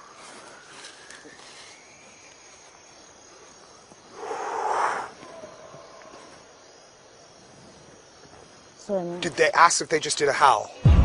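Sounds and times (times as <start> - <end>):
crickets chirring: 0.0 - 11.0
faint howl-like call: 4.1 - 6.5.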